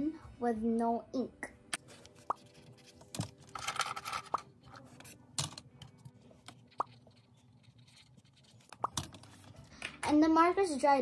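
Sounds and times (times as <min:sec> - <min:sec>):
plastic pens clicking and tapping: 0:01.8 - 0:10.2.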